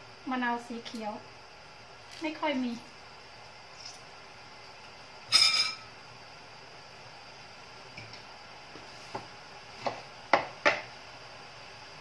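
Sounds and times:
kitchen utensils and dishes clattering: 0:05.3 - 0:05.8.

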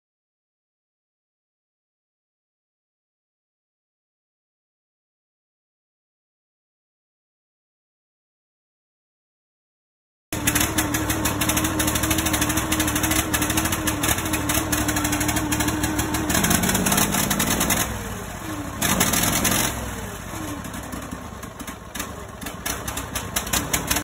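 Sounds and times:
small engine running unevenly: 0:10.4 - 0:24.0.

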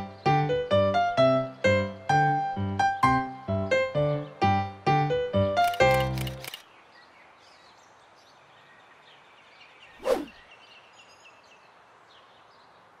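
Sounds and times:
small chirps: 0:05.6 - 0:06.7
brief whoosh: 0:10.0 - 0:10.4.

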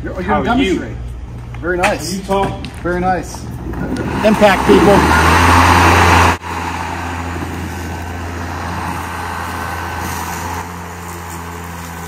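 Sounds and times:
electric lawn mower running: 0:03.9 - 0:12.0.

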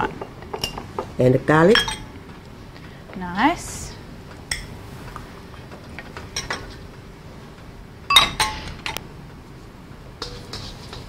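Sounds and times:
metal utensils and dishes clinking: 0:10.2 - 0:11.0.

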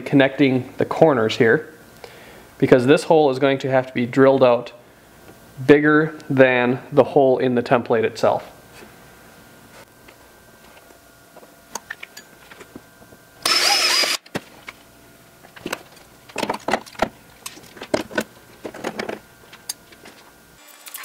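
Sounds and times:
loud hissing whir: 0:13.4 - 0:14.2.

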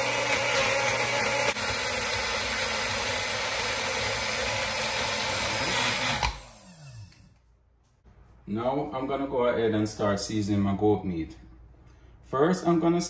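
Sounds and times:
blender motor running: 0:00.0 - 0:07.3.

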